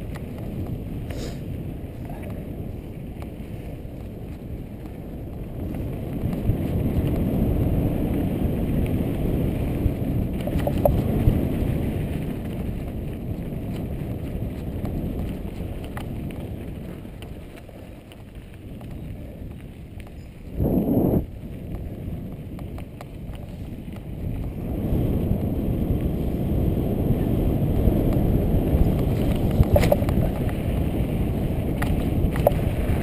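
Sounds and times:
bike clicks and rattles: 0:00.0 - 0:20.6, 0:21.2 - 0:26.6, 0:27.3 - 0:33.0
bicycle tyres on dirt trail: 0:00.0 - 0:33.0
wind rushing over microphone: 0:00.0 - 0:33.0.

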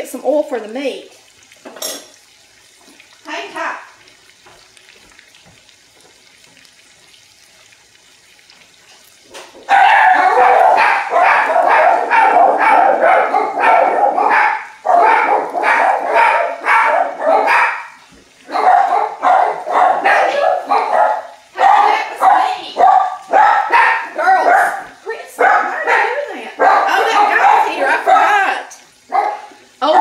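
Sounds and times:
potatoes sizzling in oil: 0:00.0 - 0:30.0
dog barking: 0:09.7 - 0:30.0.

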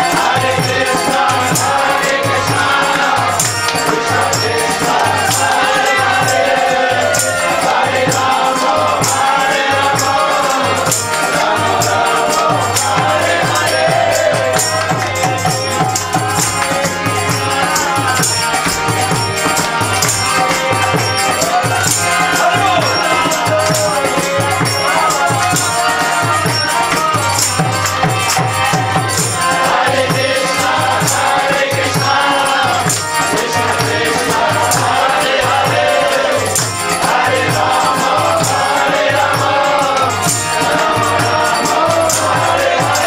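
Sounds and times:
group of voices chanting: 0:00.0 - 0:18.8, 0:28.6 - 0:43.0
repeating drum beat: 0:00.0 - 0:43.0
tambourine jingling: 0:00.0 - 0:43.0.

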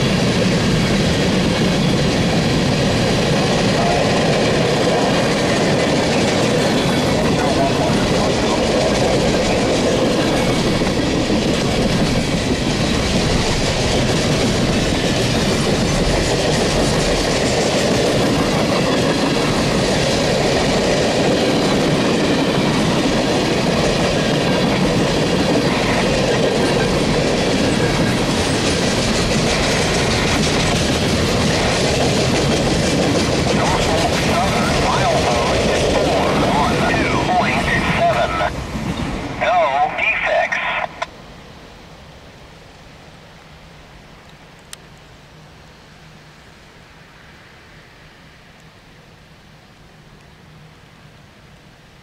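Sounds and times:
freight train wheels rumbling on rails: 0:00.0 - 0:41.2.

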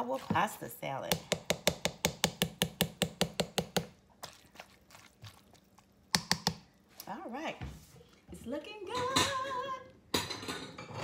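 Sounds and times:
plastic spoon tapping ceramic bowl: 0:06.1 - 0:06.6.

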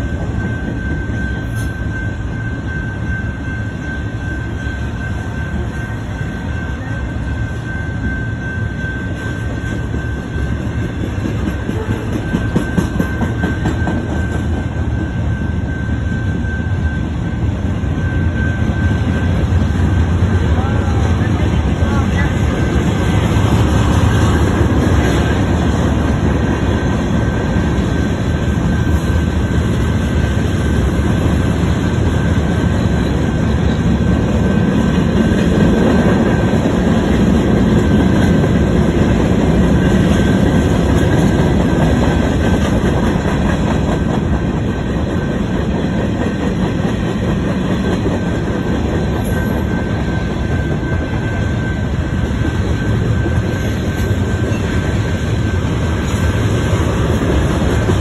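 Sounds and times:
high wheel squeal: 0:00.0 - 0:19.8, 0:48.1 - 0:58.0
train wheels rumbling on rails: 0:00.0 - 0:58.0.

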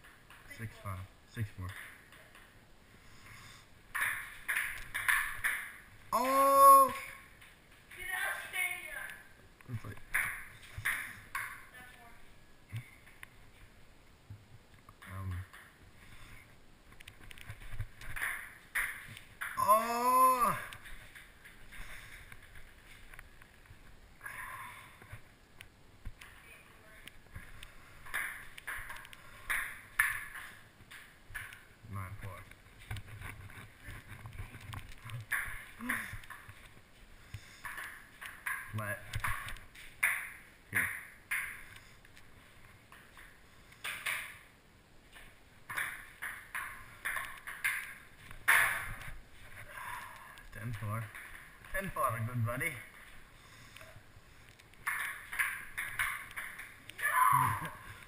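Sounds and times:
ping-pong ball hitting hard surfaces: 0:03.9 - 0:05.8, 0:10.1 - 0:11.7, 0:18.1 - 0:20.6, 0:28.0 - 0:31.6, 0:35.2 - 0:36.4, 0:37.7 - 0:41.7, 0:45.7 - 0:49.0, 0:54.8 - 0:56.8
ping pong ball bouncing: 0:04.0 - 0:05.8, 0:18.1 - 0:19.7, 0:37.7 - 0:41.6, 0:54.8 - 0:56.8.

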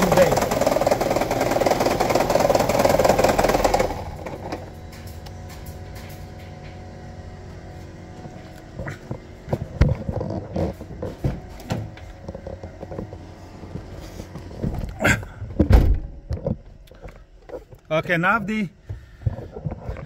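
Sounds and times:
engine rattling clatter and knocks: 0:00.0 - 0:06.8.

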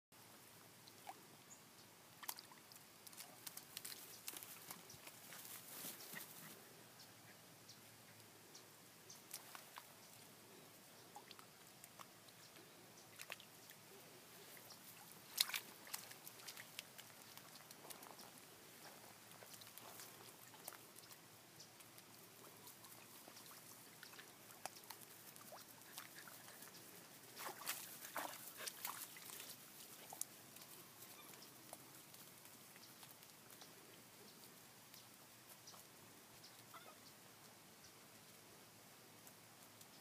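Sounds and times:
puppies splashing in water: 0:14.4 - 0:33.5.

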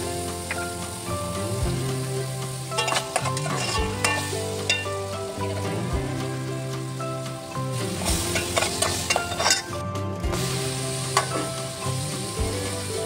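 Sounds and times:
onion sizzling in hot oil: 0:00.0 - 0:13.0
metal spoon scraping a pot: 0:02.8 - 0:05.0, 0:08.3 - 0:09.7.

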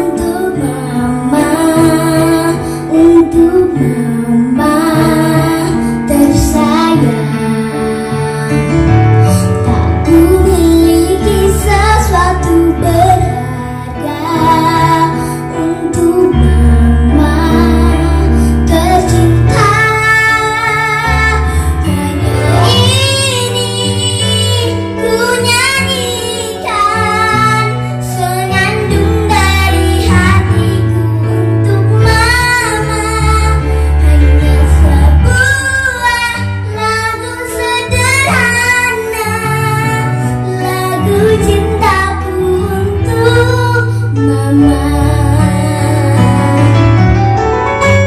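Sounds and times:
girl singing into a microphone: 0:00.0 - 0:46.8
electronic keyboard accompaniment: 0:00.0 - 0:48.0.

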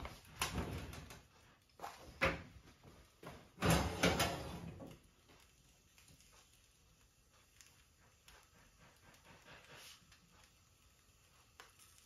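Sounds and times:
oven door knocks: 0:03.6 - 0:04.6
wire oven shelf scraping out: 0:03.6 - 0:04.9.

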